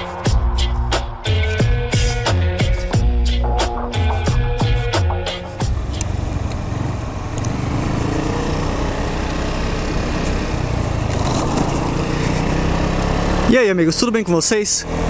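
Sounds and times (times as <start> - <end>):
scooter engine running: 5.6 - 13.5
wind and road noise: 5.6 - 15.0.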